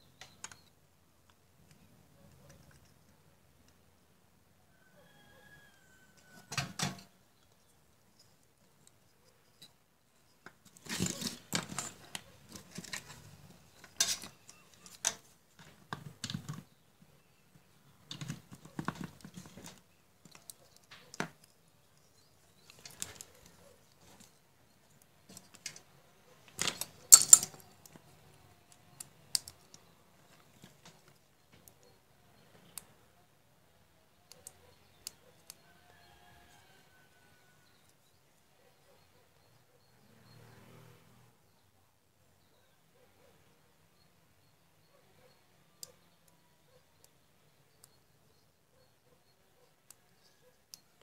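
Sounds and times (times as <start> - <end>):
hands handling wires and plug: 6.2 - 32.0.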